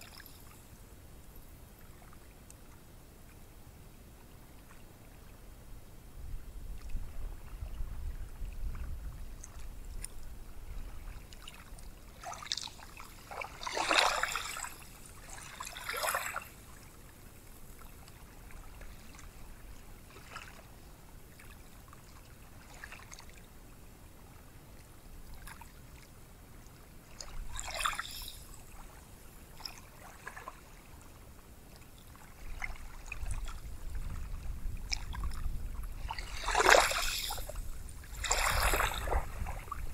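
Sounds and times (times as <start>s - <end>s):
waves breaking: 10.8s - 16.6s, 27.1s - 28.8s, 34.2s - 39.9s
ocean surf wash: 36.0s - 39.9s.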